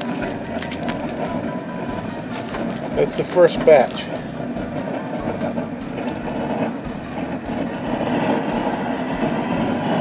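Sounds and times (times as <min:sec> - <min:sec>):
gas burner roaring: 0:00.0 - 0:10.0.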